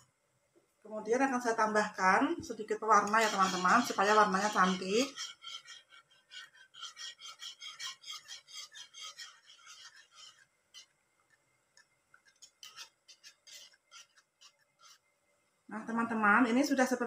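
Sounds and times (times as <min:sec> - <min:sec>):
whisk scraping pot: 0:02.8 - 0:15.1
whisk tapping: 0:03.0 - 0:10.9.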